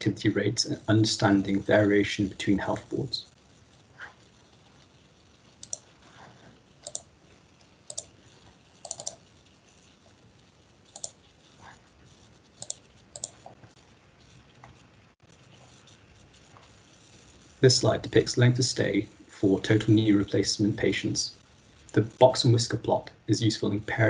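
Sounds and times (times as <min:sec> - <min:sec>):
computer mouse clicking: 0:05.6 - 0:05.9, 0:06.8 - 0:08.1, 0:08.8 - 0:09.3, 0:10.9 - 0:11.3, 0:12.6 - 0:13.6.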